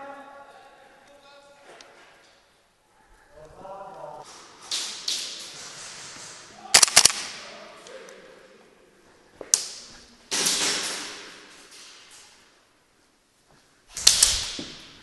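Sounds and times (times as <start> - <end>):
airsoft gun sharp cracks: 6.7 - 7.4.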